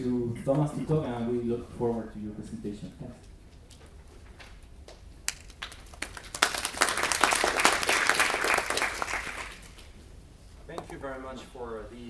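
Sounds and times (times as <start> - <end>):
audience applauding: 5.3 - 9.8.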